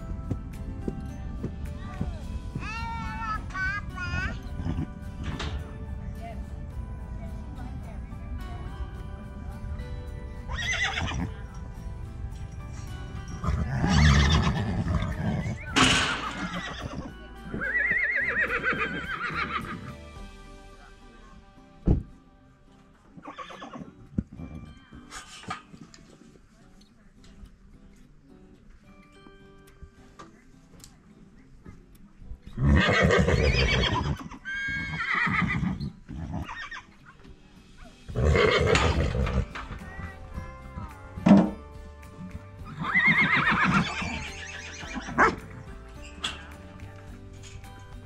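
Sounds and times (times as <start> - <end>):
background music: 0.0 - 48.0
horse whinnying: 10.5 - 11.3, 13.3 - 19.9, 23.2 - 24.0, 32.6 - 37.0, 38.1 - 39.8, 42.7 - 45.6.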